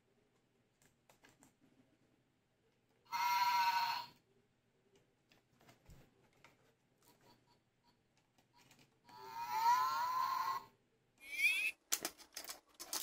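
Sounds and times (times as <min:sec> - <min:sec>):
wires and parts clicking: 0:08.1 - 0:09.2, 0:11.2 - 0:13.0.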